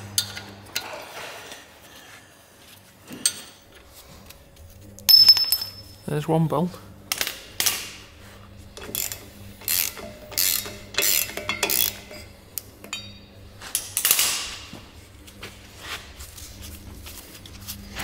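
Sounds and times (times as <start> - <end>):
ratchet wrench clicking: 8.8 - 12.3.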